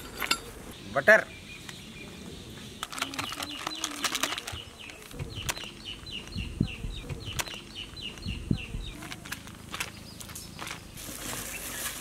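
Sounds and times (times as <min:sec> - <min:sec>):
wrappers crinkling and rustling: 0:02.8 - 0:05.7, 0:09.0 - 0:12.0
dull low thumps: 0:05.2 - 0:09.0.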